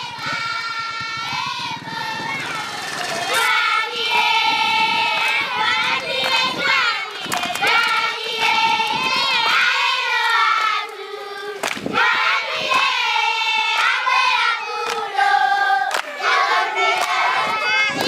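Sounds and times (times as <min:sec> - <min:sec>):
children singing in chorus: 0:00.0 - 0:18.0
hand claps: 0:05.1 - 0:11.0, 0:11.6 - 0:12.0, 0:12.6 - 0:13.0, 0:13.7 - 0:14.0, 0:14.8 - 0:15.1, 0:15.9 - 0:16.2, 0:16.9 - 0:18.0.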